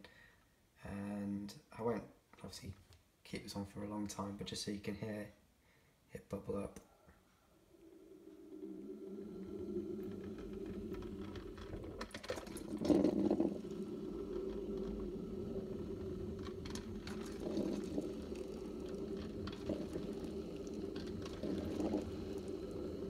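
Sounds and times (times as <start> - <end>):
coffee maker bubbling: 7.6 - 23.0.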